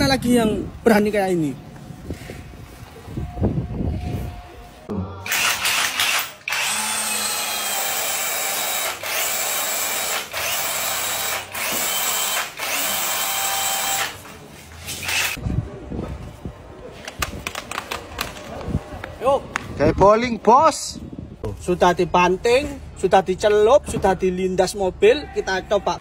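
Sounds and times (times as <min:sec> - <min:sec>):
cordless drill whirring: 0:05.3 - 0:14.2, 0:15.0 - 0:15.4.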